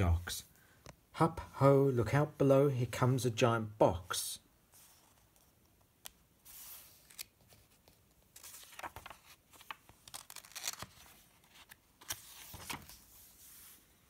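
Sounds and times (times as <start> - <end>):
book pages rustling and turning: 4.7 - 14.0.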